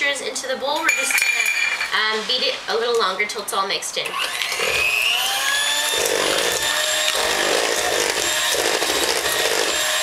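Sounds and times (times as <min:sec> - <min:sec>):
electric mixer running: 0:04.1 - 0:10.0.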